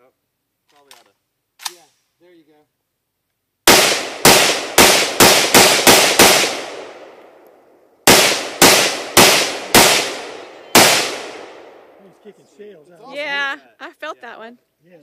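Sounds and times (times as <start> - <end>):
rifle shots with echo: 3.6 - 7.4, 8.0 - 12.4.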